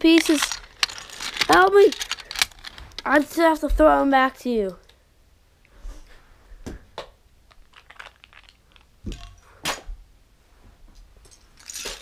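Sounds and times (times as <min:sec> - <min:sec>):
plastic bricks clicking and clattering: 0:00.0 - 0:03.2, 0:07.5 - 0:09.4, 0:11.6 - 0:12.0.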